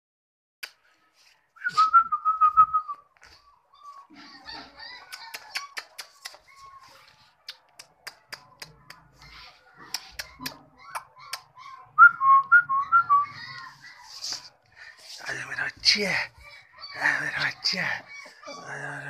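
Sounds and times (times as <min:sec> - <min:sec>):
person whistling: 0:01.6 - 0:03.0.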